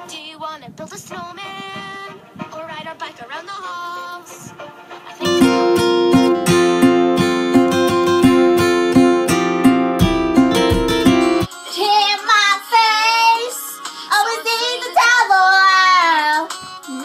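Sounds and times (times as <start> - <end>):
strummed acoustic guitar: 5.2 - 11.5.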